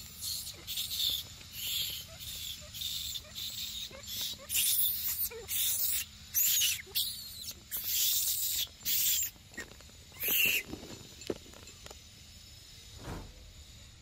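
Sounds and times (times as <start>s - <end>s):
monkeys screaming: 0.2s - 9.4s, 10.2s - 10.7s.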